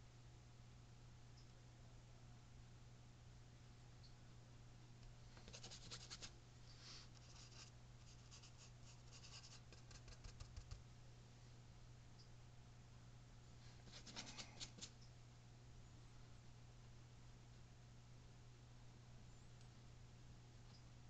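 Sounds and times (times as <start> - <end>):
low steady hum: 0.0 - 21.0
paintbrush scratching and tapping: 5.4 - 6.3, 7.2 - 10.8, 13.9 - 15.0.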